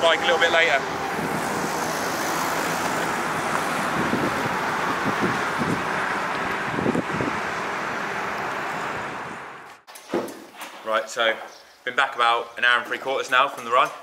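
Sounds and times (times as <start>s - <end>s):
rushing road noise: 0.0s - 9.9s.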